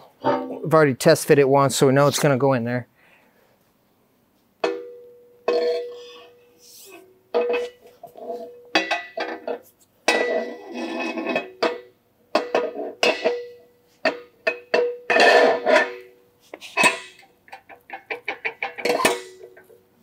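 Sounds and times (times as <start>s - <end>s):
metal clanks and clinks: 4.6s - 6.3s, 7.3s - 16.1s, 16.8s - 19.8s.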